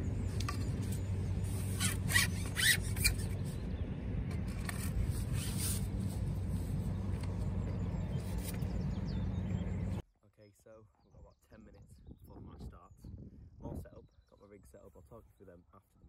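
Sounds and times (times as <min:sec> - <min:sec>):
steady low rumble: 0:00.0 - 0:10.4.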